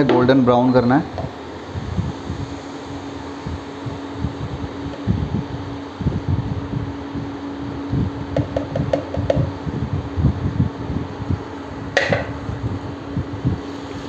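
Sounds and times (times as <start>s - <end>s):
cooling fan humming: 0.0s - 14.0s.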